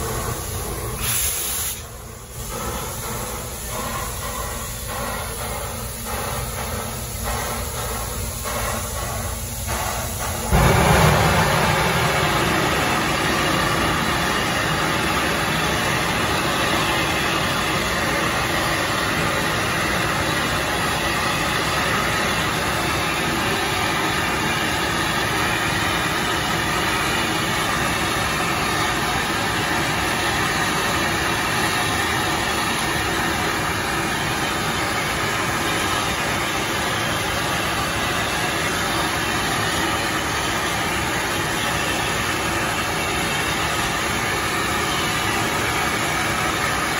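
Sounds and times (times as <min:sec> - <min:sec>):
steam locomotive hissing: 0:00.0 - 0:46.9
low rumble: 0:10.5 - 0:15.4.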